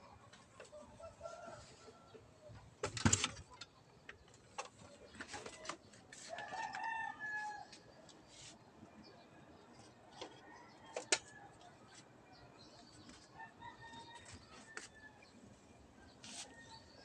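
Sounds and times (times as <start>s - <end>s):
rooster crowing: 6.3s - 7.8s.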